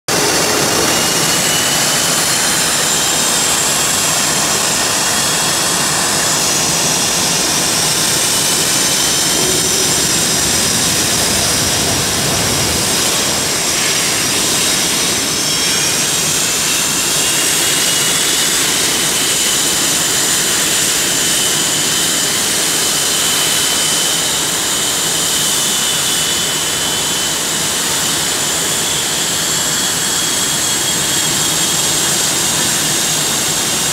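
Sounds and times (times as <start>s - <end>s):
high-pitched engine whines: 0.0s - 33.9s
jet engines taxiing: 0.1s - 33.9s.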